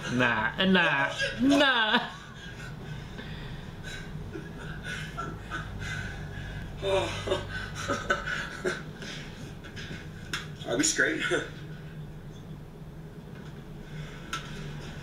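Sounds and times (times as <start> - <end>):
low steady hum: 0.0 - 15.0
man laughing: 0.8 - 2.8, 3.9 - 6.2, 6.8 - 9.2
man breathing hard: 2.4 - 5.2.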